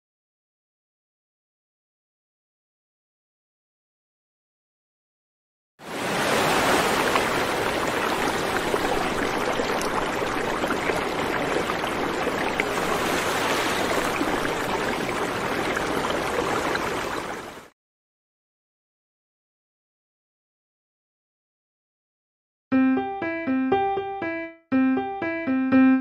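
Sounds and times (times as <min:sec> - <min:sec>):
water rushing: 0:05.8 - 0:17.7.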